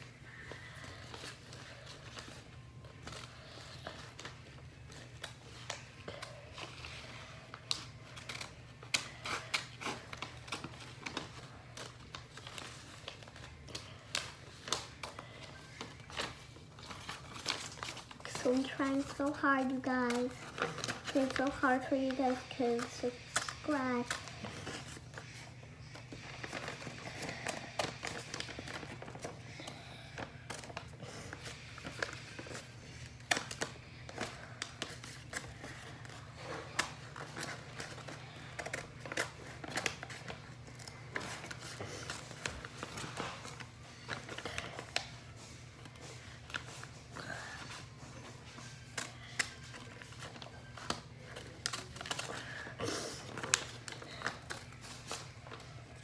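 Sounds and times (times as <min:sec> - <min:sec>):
paper rustling: 0:00.3 - 0:56.0
scissors snipping paper: 0:03.0 - 0:45.1.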